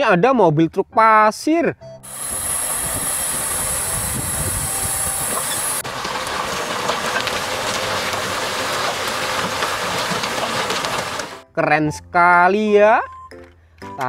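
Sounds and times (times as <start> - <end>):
high hydraulic hiss: 2.0 - 5.8
truck engine running: 2.1 - 11.4.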